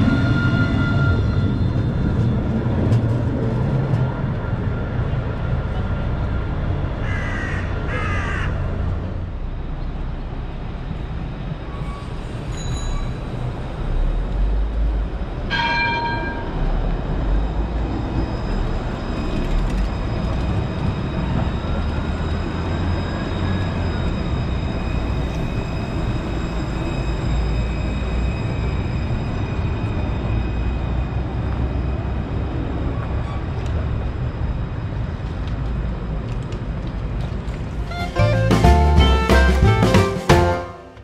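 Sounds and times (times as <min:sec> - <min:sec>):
tram horn toot: 0:00.0 - 0:02.0, 0:37.7 - 0:41.0
tram rumbling past: 0:00.0 - 0:41.0.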